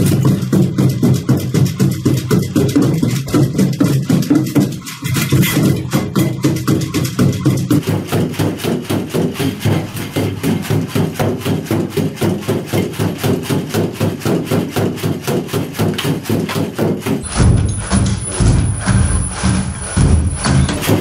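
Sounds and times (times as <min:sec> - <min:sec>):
electronic music with fast beat: 0:17.2 - 0:21.0.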